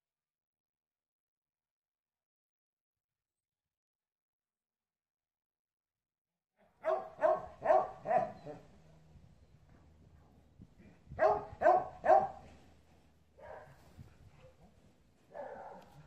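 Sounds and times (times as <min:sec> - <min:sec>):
dog barking: 0:06.6 - 0:08.7, 0:11.1 - 0:12.6, 0:13.4 - 0:14.6, 0:15.2 - 0:16.0.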